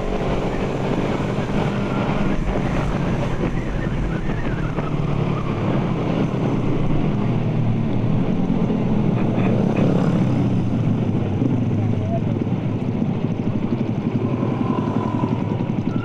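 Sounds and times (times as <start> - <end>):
wind buffeting microphone: 0.0 - 9.2, 10.0 - 16.0
motorcycle engine running: 0.0 - 16.0.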